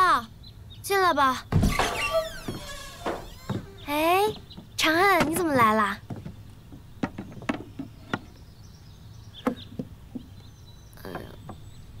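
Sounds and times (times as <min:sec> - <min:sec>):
wooden knocks and clicks: 0:01.6 - 0:08.3, 0:09.4 - 0:10.4.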